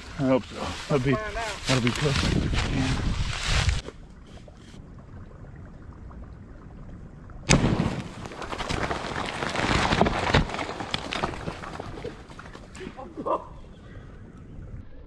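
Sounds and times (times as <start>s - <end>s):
loud explosion: 7.5s - 8.2s
debris crackling down: 7.5s - 13.2s.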